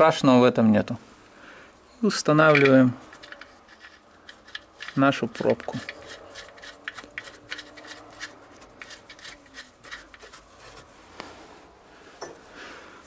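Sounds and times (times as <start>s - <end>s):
metal clicks and scraping: 2.3s - 10.5s
gloves rubbing on metal: 2.5s - 11.6s.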